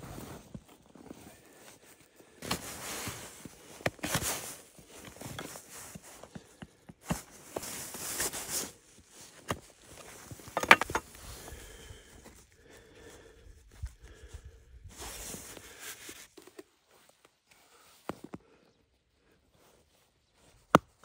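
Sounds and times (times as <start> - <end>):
rustling and scraping of poles: 2.4 - 11.4
wooden poles knocking: 10.6 - 11.0.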